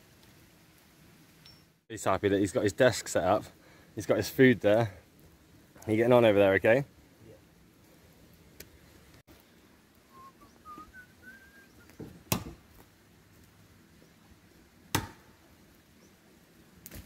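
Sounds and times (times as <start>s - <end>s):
whistled notes climbing in pitch: 10.1s - 11.9s.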